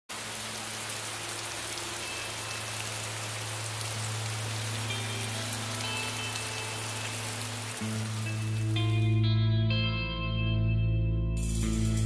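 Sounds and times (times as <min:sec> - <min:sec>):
heavy rain falling: 0:00.1 - 0:09.1.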